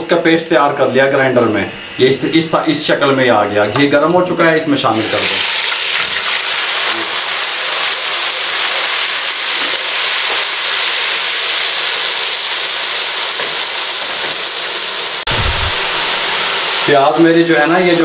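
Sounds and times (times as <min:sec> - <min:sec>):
onion paste sizzling in fat: 0:04.9 - 0:18.0.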